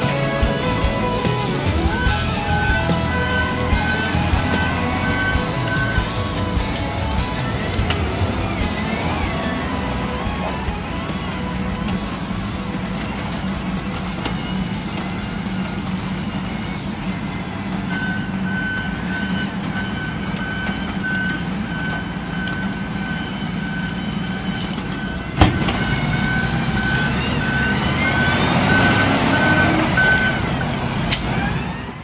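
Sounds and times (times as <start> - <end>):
asphalt spilling from bucket: 0.0 - 31.2
diesel engine running: 0.0 - 32.0
engine revving with rising whine: 0.0 - 32.0
backup alarm beeping: 0.6 - 30.7.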